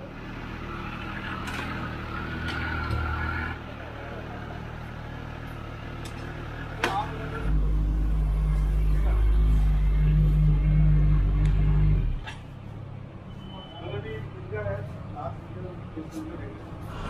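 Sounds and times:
motorcycle engines idling: 0.0 - 13.0.

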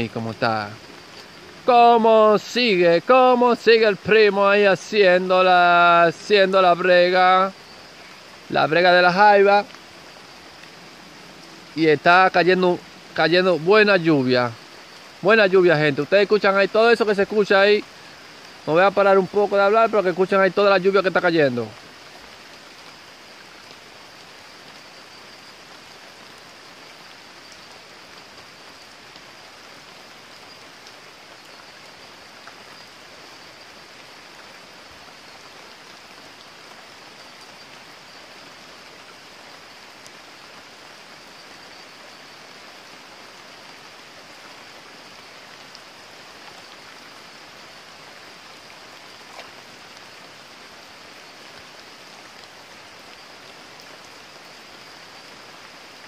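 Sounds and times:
creek water running: 0.0 - 56.0
heavy rain falling: 0.0 - 56.0.

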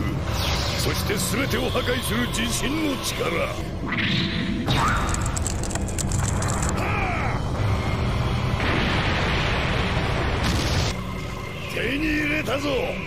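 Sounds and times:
deep continuous rumble: 4.6 - 13.0.

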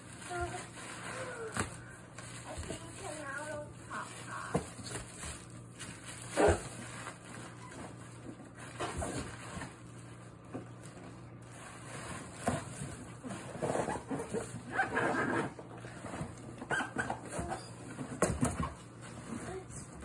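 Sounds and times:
plastic packing crinkling: 0.0 - 14.7.

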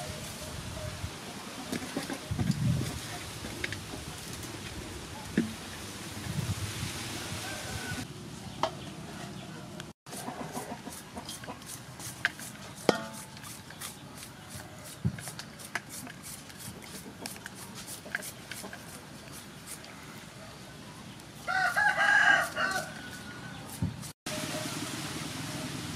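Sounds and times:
chickens clucking: 1.3 - 4.2, 7.5 - 20.2.

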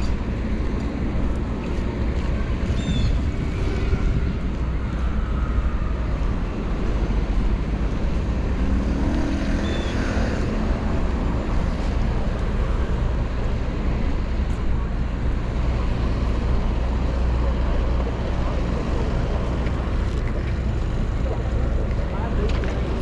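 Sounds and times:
city traffic rumble: 0.0 - 23.0
passing vehicle hum: 0.0 - 23.0.

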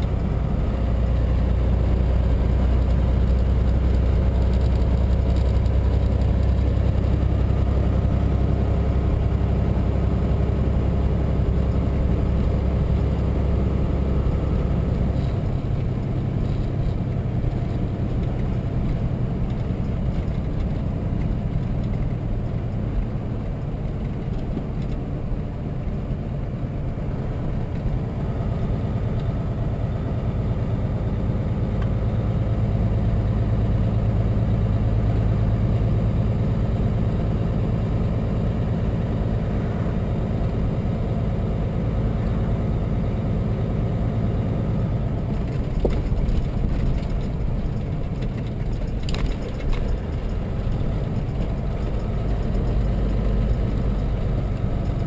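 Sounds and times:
steady lighter rumble: 0.0 - 55.0
truck diesel engine drone: 0.0 - 55.0.

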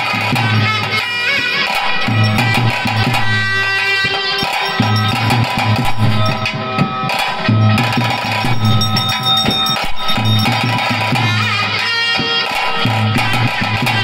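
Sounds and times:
drums: 0.0 - 14.0
strummed guitar: 0.0 - 14.0
pulsing bass line: 1.8 - 11.3.

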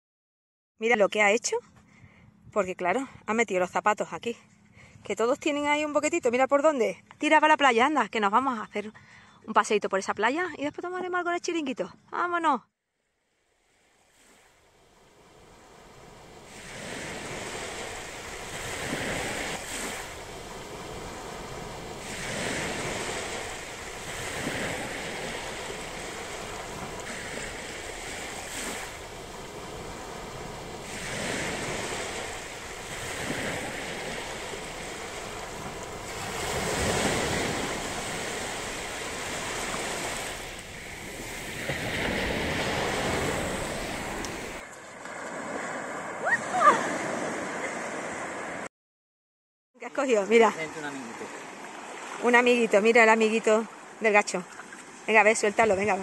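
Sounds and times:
waves washing up on sand: 13.7 - 48.7.

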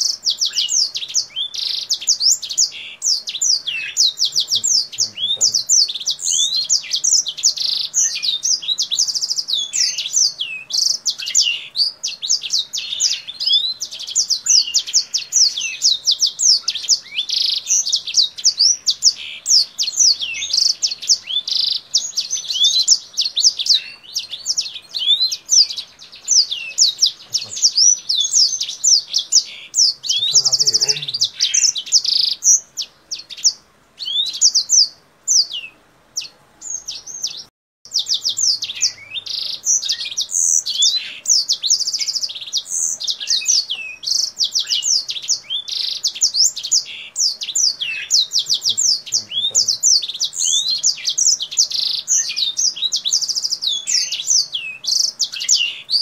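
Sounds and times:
finch singing whistled notes: 0.0 - 56.0.

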